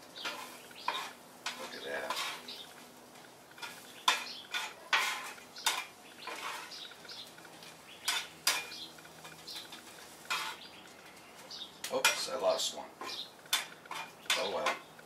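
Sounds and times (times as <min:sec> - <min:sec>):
metal scraper scraping griddle: 0:00.2 - 0:02.7, 0:03.5 - 0:06.9, 0:07.6 - 0:10.7, 0:13.0 - 0:14.9.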